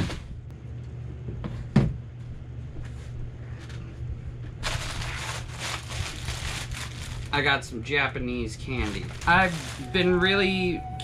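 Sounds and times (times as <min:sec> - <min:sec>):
steady low hum: 0:00.0 - 0:11.0
plastic snack bag crinkling: 0:04.6 - 0:07.6, 0:08.4 - 0:10.4.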